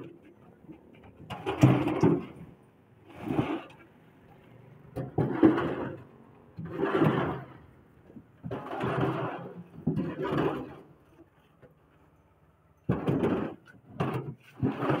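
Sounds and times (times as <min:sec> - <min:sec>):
concrete blocks scraping: 0:00.0 - 0:12.1, 0:12.8 - 0:15.0.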